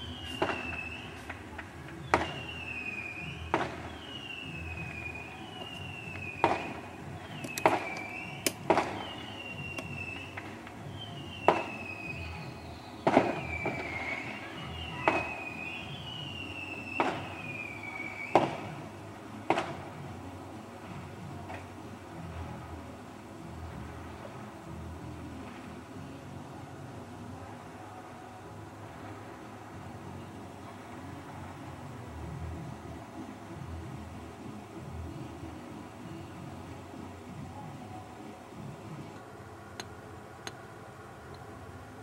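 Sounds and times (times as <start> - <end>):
falling whistle of fireworks: 0.0 - 18.9
fireworks bangs: 0.0 - 18.9, 19.5 - 20.0.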